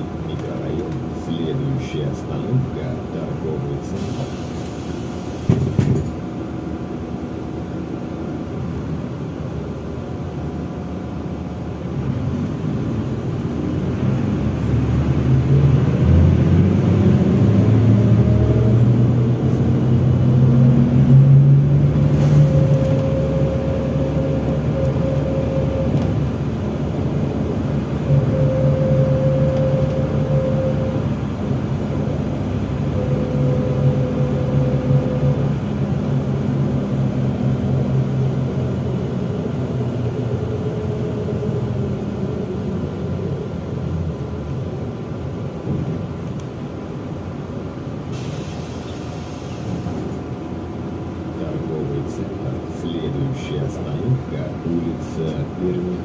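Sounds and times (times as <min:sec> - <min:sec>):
bus engine accelerating: 0:00.0 - 0:56.0.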